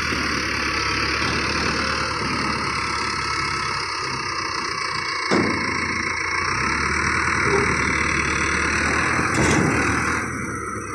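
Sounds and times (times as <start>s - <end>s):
tractor diesel engine running: 0.0s - 10.9s
sharp clunk: 9.3s - 9.9s.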